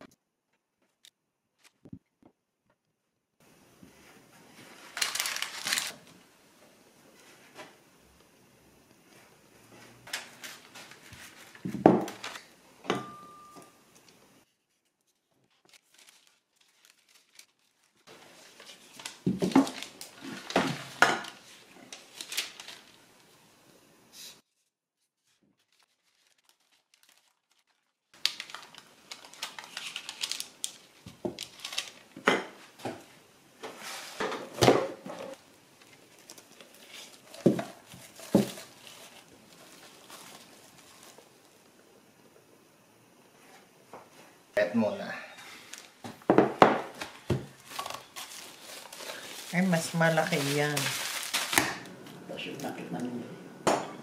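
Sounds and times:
crinkling: 4.0s - 6.3s, 8.9s - 12.6s, 14.0s - 23.5s, 25.2s - 41.8s, 45.4s - 46.3s, 46.9s - 53.2s.

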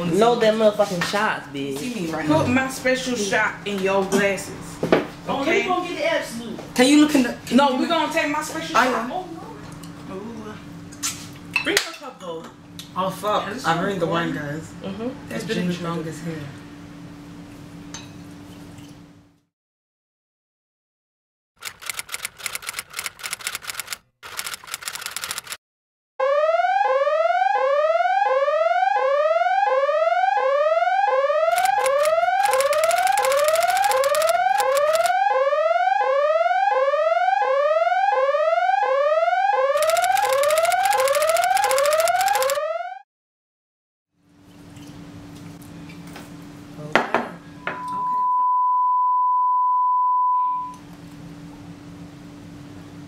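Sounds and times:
electronic alarm whoop: 26.2s - 43.0s
harsh rapid crackling: 31.6s - 35.1s, 39.8s - 42.6s
high test-tone beep: 47.6s - 50.8s.

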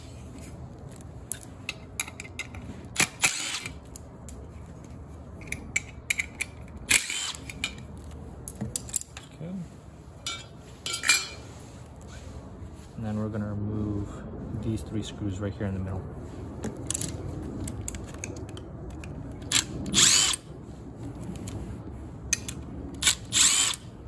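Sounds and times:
cordless drill running: 19.9s - 20.4s, 23.0s - 23.9s.

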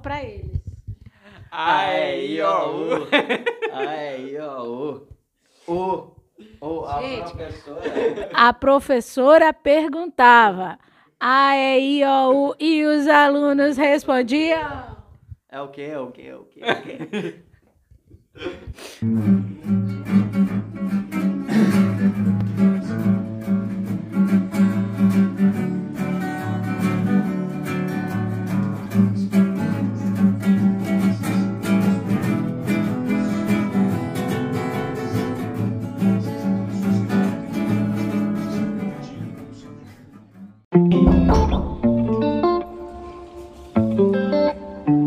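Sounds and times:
acoustic guitars strummed and picked: 19.0s - 45.0s.

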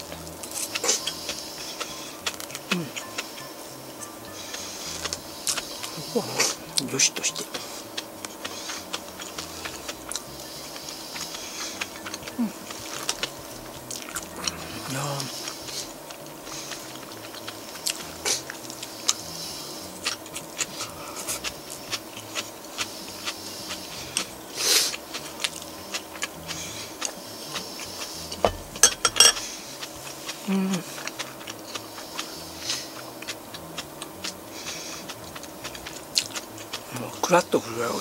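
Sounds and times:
chewing: 0.0s - 38.0s
dishes clinking: 28.4s - 29.4s.

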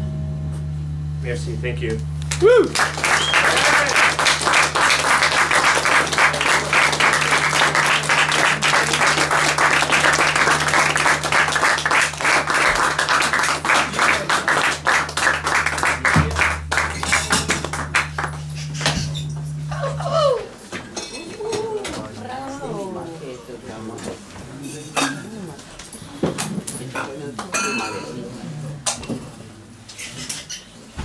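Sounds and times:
low hum: 0.0s - 22.6s
audience applauding: 2.3s - 18.8s.

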